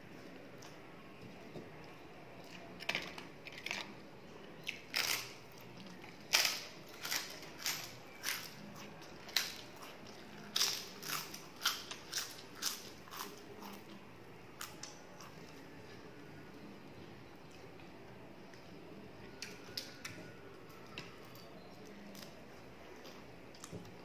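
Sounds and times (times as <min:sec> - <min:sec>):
crunchy wafer being chewed: 0:04.6 - 0:14.0, 0:14.6 - 0:15.6.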